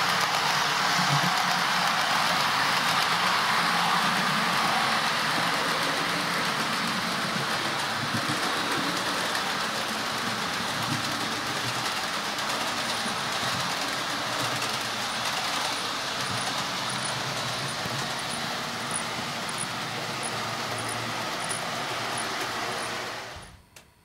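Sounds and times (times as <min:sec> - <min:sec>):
model trains rolling on track: 0:00.0 - 0:23.6.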